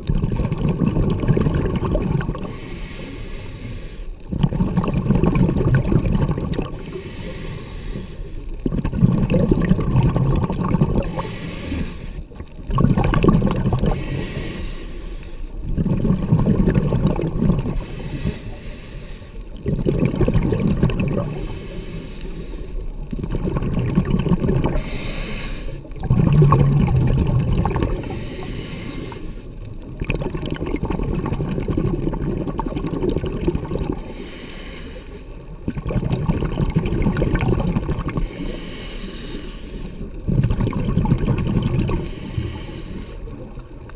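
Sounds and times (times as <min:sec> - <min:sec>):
exhaled air bubbling: 0:00.0 - 0:43.9
regulator hiss on inhale: 0:02.4 - 0:04.3, 0:06.7 - 0:08.6, 0:11.0 - 0:12.4, 0:13.8 - 0:15.6, 0:17.7 - 0:19.6, 0:21.2 - 0:23.0, 0:24.7 - 0:26.0, 0:27.9 - 0:29.9, 0:34.0 - 0:35.6, 0:38.2 - 0:40.3, 0:41.9 - 0:43.7.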